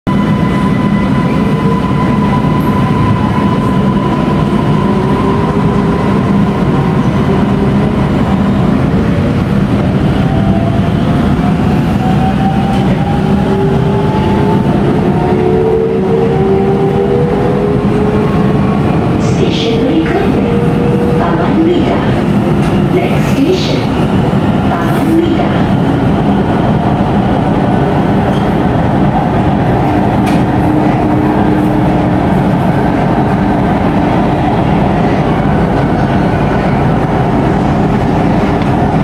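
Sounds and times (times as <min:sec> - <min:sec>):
metro train rumbling: 0:00.0 - 0:39.0.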